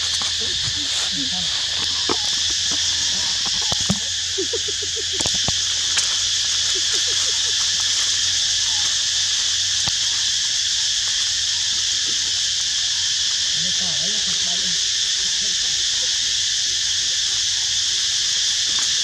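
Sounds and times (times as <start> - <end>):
dry leaves crackling: 0.0 - 10.4
high insect chorus: 0.0 - 19.0
scattered clicks in leaf litter: 9.8 - 10.4, 18.6 - 19.0.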